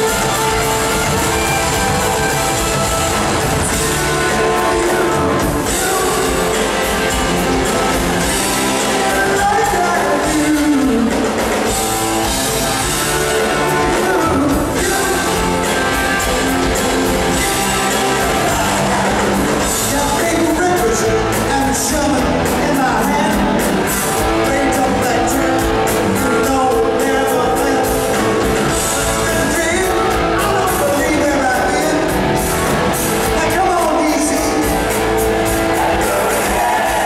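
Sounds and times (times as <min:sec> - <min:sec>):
drums: 0:00.0 - 0:37.0
electric guitars: 0:00.0 - 0:37.0
person singing: 0:03.6 - 0:11.8, 0:13.7 - 0:23.6.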